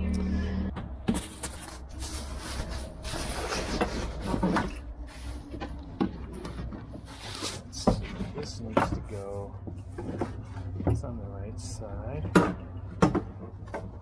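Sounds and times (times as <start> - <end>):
fabric rustling: 1.1 - 7.8.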